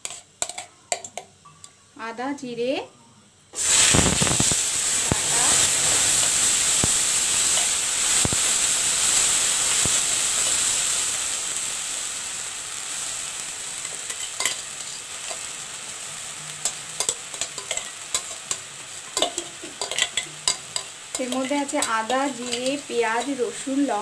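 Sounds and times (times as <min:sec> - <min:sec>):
metal spoon clinking on pan: 0:00.0 - 0:01.3, 0:13.8 - 0:15.5, 0:16.6 - 0:23.4
paste sizzling in hot oil: 0:03.6 - 0:24.0.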